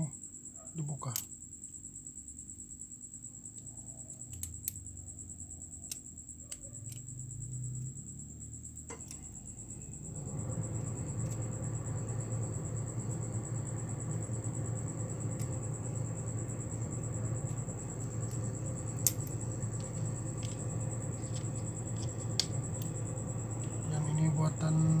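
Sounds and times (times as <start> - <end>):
faint high whine: 0.0 - 25.0
low rumble: 9.5 - 25.0.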